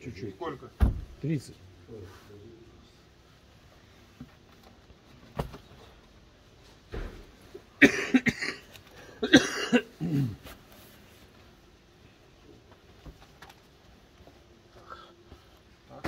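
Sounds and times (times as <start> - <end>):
person coughing: 7.8 - 10.4.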